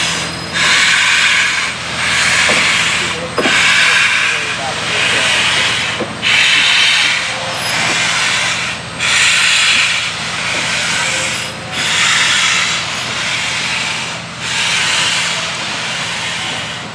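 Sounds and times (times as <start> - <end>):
steam locomotive exhaust chuffing: 0.0 - 16.9.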